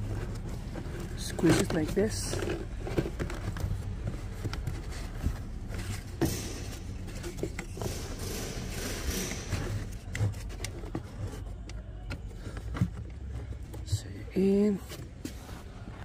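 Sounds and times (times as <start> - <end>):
filter scraping and rustling: 0.0 - 14.0.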